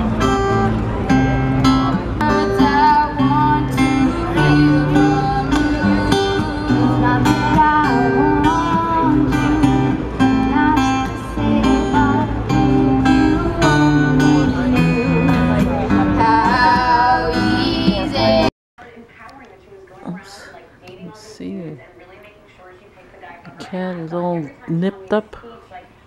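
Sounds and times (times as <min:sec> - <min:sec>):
acoustic guitar strumming: 0:00.0 - 0:18.5
boys singing: 0:02.2 - 0:18.5.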